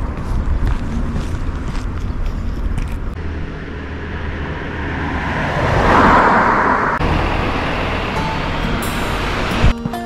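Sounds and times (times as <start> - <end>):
car passing by: 3.2 - 9.7.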